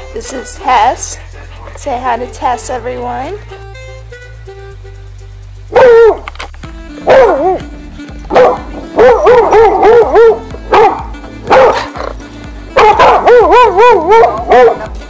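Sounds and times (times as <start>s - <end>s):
background music: 0.0s - 15.0s
dog yipping and barking: 5.7s - 6.3s, 7.0s - 7.6s, 8.3s - 12.2s, 12.8s - 14.9s.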